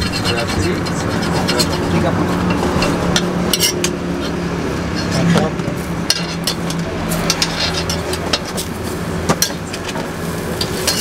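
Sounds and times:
metal spatula clinking on griddle: 10.6s - 11.0s.

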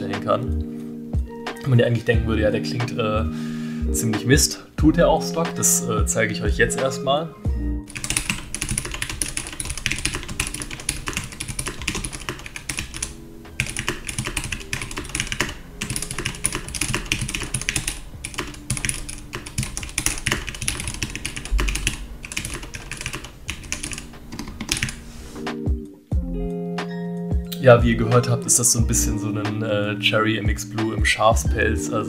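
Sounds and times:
mechanical keyboard typing: 7.9s - 25.0s.

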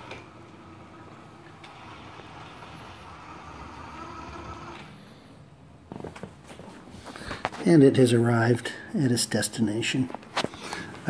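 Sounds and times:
robot vacuum motors and wheels: 0.0s - 5.1s.

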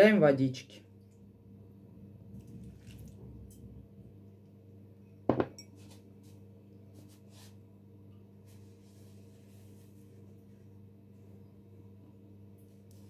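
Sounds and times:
dishes clattering: 5.3s - 5.8s.

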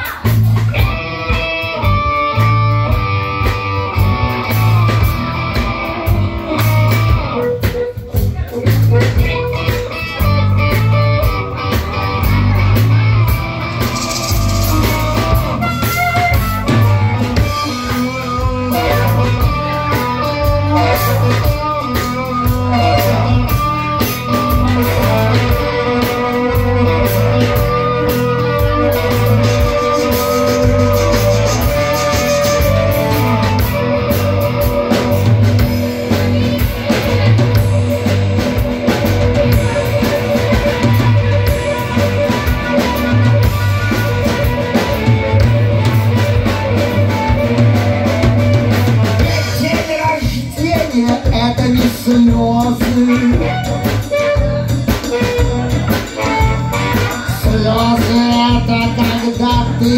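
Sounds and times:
bass guitar: 0.0s - 59.9s
drum kit: 0.0s - 59.9s
electric guitars: 0.0s - 59.9s
harmonica: 10.3s - 50.6s.

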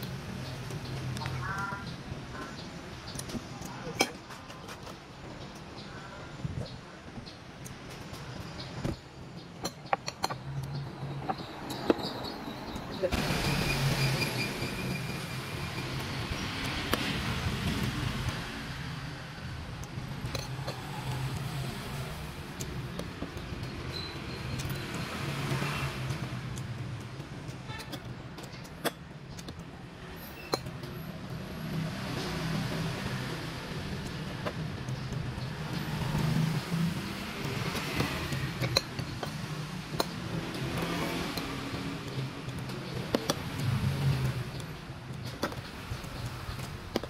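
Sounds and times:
metal spoon clinking on ceramic bowls: 9.6s - 12.0s, 37.7s - 40.2s.

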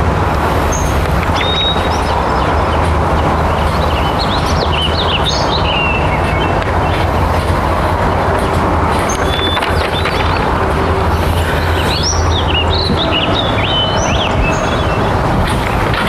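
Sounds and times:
birds chirping: 0.6s - 16.0s.

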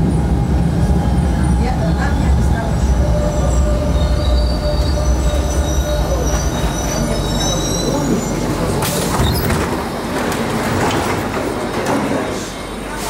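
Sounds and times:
train rumbling on rails: 0.0s - 13.0s
wheels squealing: 3.4s - 9.6s.

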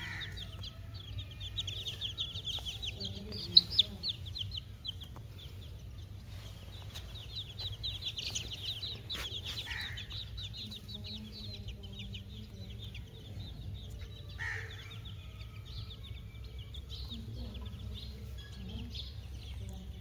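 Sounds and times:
baby chicks peeping: 0.0s - 20.0s.

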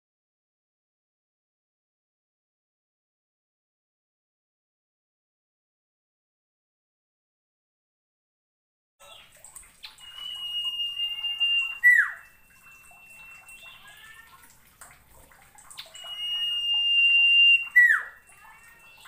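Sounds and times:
soft short bird chirps: 9.0s - 14.4s, 15.7s - 19.0s
bird whistling with swooping note: 9.8s - 14.0s, 15.8s - 18.4s.

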